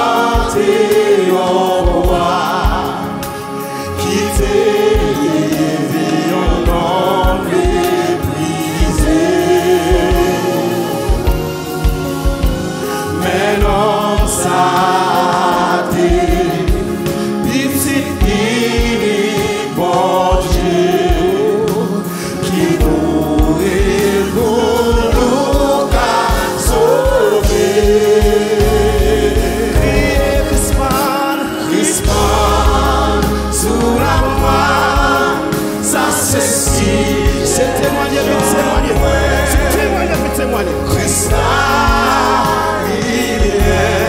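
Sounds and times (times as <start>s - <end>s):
band accompaniment: 0.0s - 44.0s
other voices singing: 0.0s - 44.0s
man singing into a microphone: 17.2s - 44.0s.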